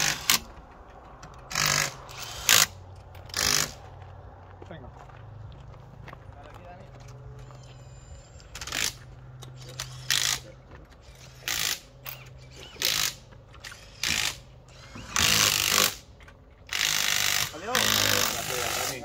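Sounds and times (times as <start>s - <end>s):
impact wrench bursts: 0.0s - 0.5s, 1.5s - 3.8s, 7.7s - 16.1s, 16.7s - 19.0s.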